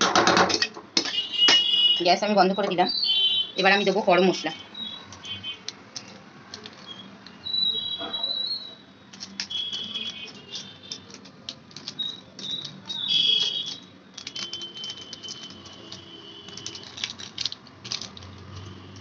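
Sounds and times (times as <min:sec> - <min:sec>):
plastic packet crinkling: 0:04.3 - 0:07.8, 0:09.1 - 0:19.0.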